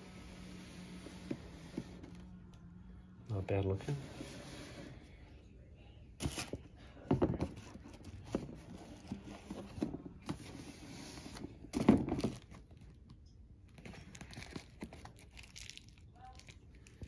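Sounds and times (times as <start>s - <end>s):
rustling and scraping of box: 6.2s - 12.6s.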